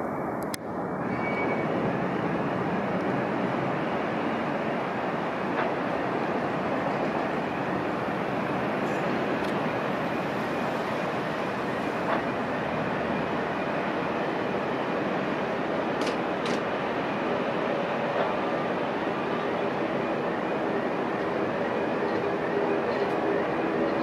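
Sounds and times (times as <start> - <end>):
steady rushing background noise: 0.0 - 24.0.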